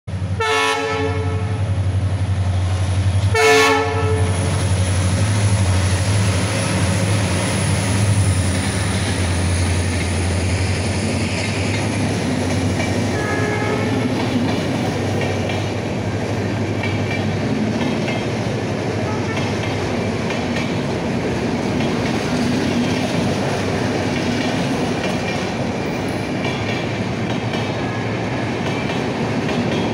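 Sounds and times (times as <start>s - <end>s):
train passing rumble: 0.1s - 29.9s
locomotive horn blasts: 0.4s - 1.7s, 3.3s - 4.4s, 13.1s - 14.1s, 19.0s - 19.6s.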